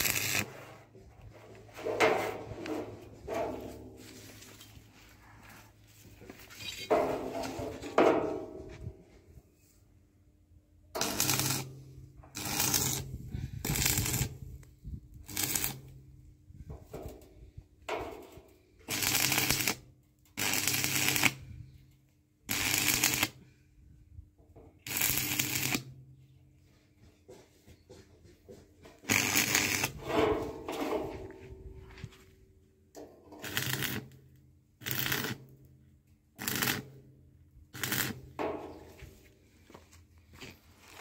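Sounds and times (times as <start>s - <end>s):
crackling welding arc: 0.0s - 0.5s, 11.0s - 11.7s, 12.3s - 14.4s, 15.2s - 15.9s, 18.9s - 19.8s, 20.4s - 21.4s, 22.5s - 23.4s, 24.9s - 25.9s, 29.1s - 30.0s, 33.4s - 34.2s, 34.8s - 35.4s, 36.4s - 37.0s, 37.7s - 38.2s
welding transformer hum: 0.0s - 0.5s, 11.0s - 16.1s, 18.9s - 19.8s, 20.4s - 21.4s, 22.5s - 23.4s, 24.8s - 25.9s, 29.1s - 30.0s, 33.4s - 35.4s, 36.4s - 37.0s, 37.6s - 38.4s.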